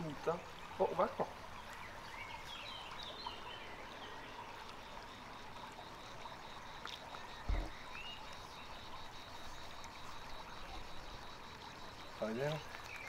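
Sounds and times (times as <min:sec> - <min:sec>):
faint steady hiss: 0:00.0 - 0:13.0
low thump: 0:07.4 - 0:07.8.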